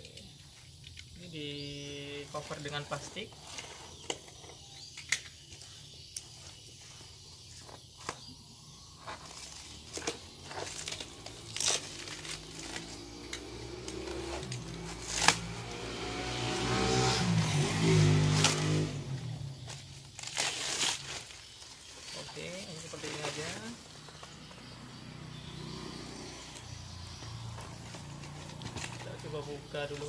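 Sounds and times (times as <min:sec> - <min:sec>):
box cutter cutting: 0:09.4 - 0:15.8, 0:17.3 - 0:18.9
plastic wrapping crinkling: 0:19.7 - 0:23.8.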